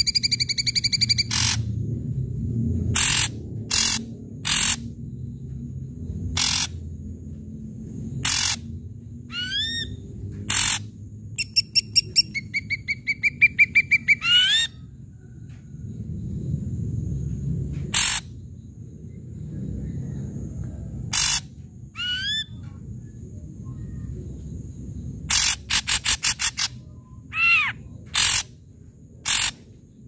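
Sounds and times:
bird rising whistles: 0:00.0 - 0:01.6
bird fast chattering: 0:00.0 - 0:01.7, 0:03.0 - 0:04.8, 0:06.4 - 0:06.8, 0:08.2 - 0:08.7, 0:10.5 - 0:14.7, 0:21.1 - 0:22.5, 0:25.3 - 0:28.5, 0:29.2 - 0:29.6
bird rasping calls: 0:00.0 - 0:01.7, 0:03.0 - 0:04.8, 0:06.4 - 0:06.8, 0:08.2 - 0:08.6, 0:09.3 - 0:14.8, 0:18.0 - 0:18.2, 0:21.1 - 0:22.5, 0:25.3 - 0:28.5, 0:29.2 - 0:29.6.

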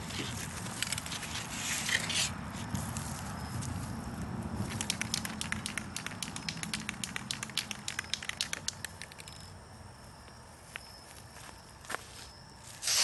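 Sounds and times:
spray can ball rattling: 0:04.6 - 0:09.4.

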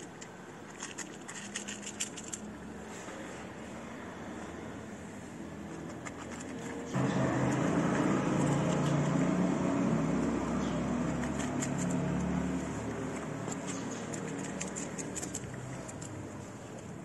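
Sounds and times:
cat chewing dry kibble: 0:00.0 - 0:02.5, 0:10.9 - 0:16.4
vehicle engine rumbling: 0:00.0 - 0:17.0.

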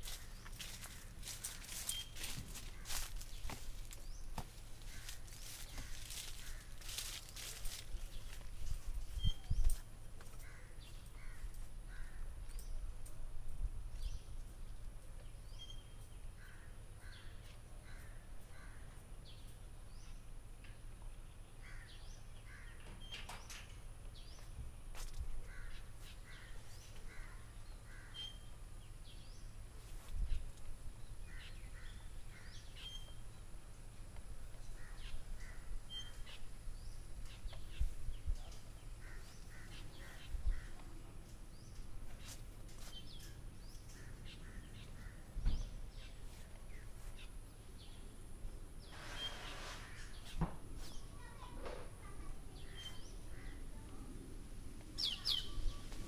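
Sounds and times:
birds calling in short notes: 0:00.0 - 0:08.4, 0:09.1 - 0:12.8, 0:25.5 - 0:29.4, 0:31.2 - 0:33.4, 0:55.0 - 0:55.9.

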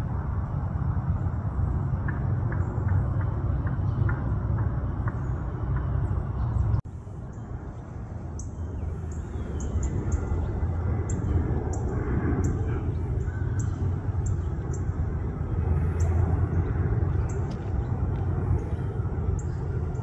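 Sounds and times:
airliner engines rumbling overhead: 0:00.0 - 0:20.0.

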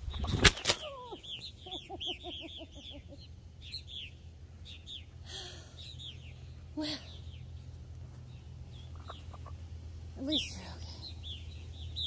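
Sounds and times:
hen clucking: 0:00.0 - 0:04.1, 0:08.6 - 0:10.5
birds chirping: 0:00.0 - 0:12.0.

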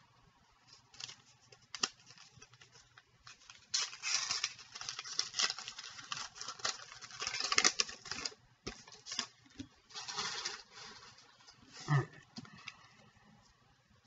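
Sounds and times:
plastic wrapper crinkling and tearing: 0:00.7 - 0:11.6.

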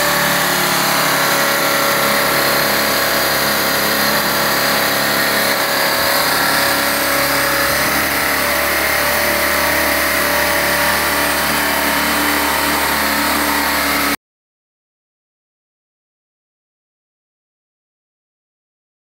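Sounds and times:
drone rotors whirring: 0:00.0 - 0:14.2.

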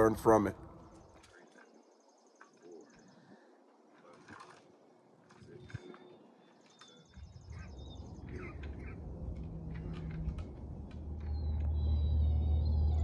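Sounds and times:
birds chirping: 0:00.0 - 0:13.0
low rumble: 0:07.2 - 0:13.0.

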